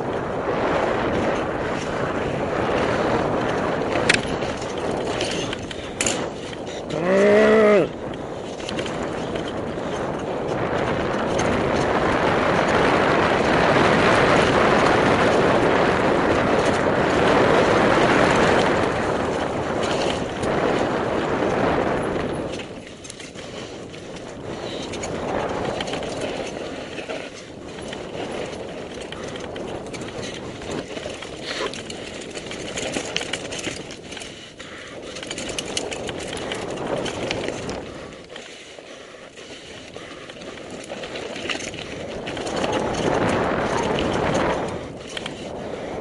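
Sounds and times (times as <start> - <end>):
bike tyres on dirt: 0.0 - 46.0
wind rushing past microphone: 0.0 - 46.0.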